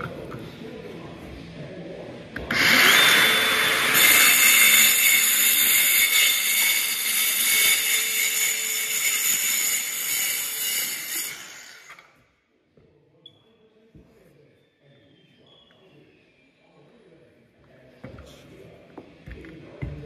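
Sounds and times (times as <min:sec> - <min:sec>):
circular saw cutting: 0:02.5 - 0:12.1.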